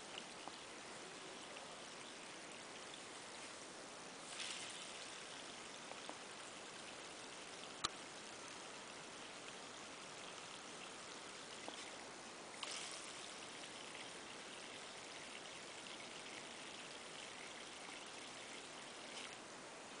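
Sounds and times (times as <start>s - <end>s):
water running from a hose: 4.2s - 20.0s.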